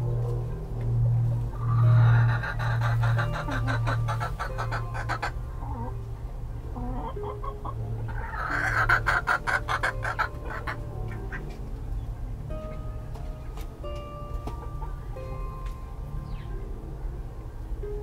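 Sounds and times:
hen clucking: 1.5 - 6.0, 6.7 - 11.7.

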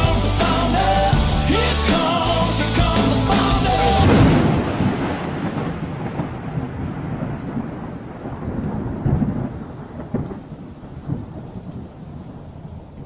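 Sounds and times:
rain hissing: 0.0 - 13.0
thunder rumbling: 2.8 - 13.0.

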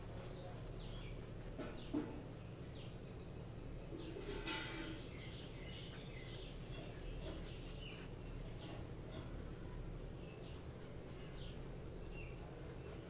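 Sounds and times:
paintbrush brushing on paper: 0.0 - 2.9, 6.2 - 13.0.

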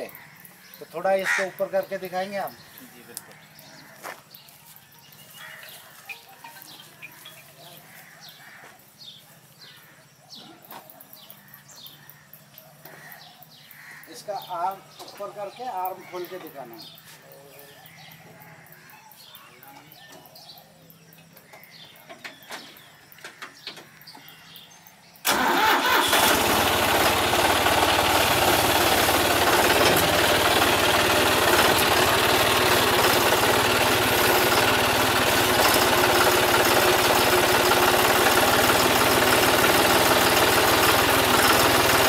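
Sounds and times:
tractor diesel engine running: 25.2 - 42.0.

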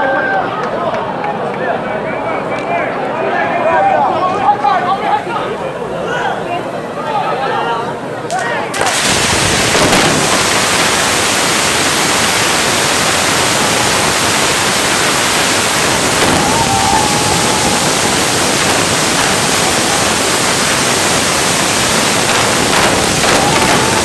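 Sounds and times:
fireworks hissing rush of sparks: 8.7 - 24.0
faint firework whistle: 12.4 - 21.2.

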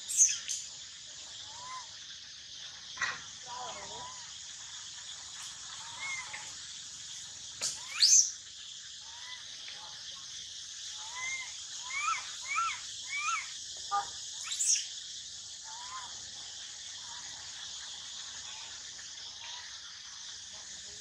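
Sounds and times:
insect drone: 0.0 - 21.0
baby monkey crying calls: 1.5 - 1.9, 5.8 - 6.5, 7.7 - 8.3, 11.0 - 14.9, 15.7 - 16.1.

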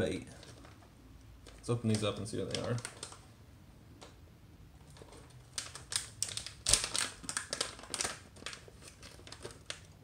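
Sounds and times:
plastic package crinkling: 1.4 - 3.3, 4.8 - 10.0
sharp crack of plastic: 5.6 - 8.2.

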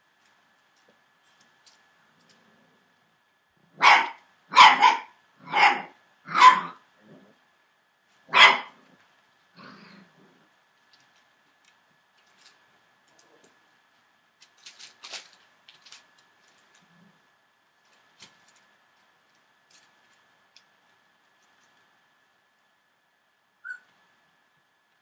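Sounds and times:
dog barking: 3.8 - 6.8, 8.3 - 8.8.

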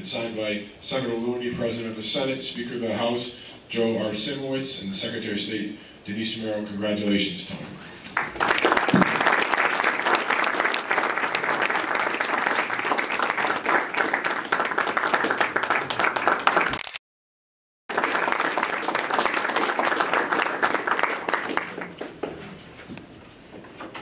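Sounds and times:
audience applauding: 8.1 - 16.8, 17.9 - 22.6.

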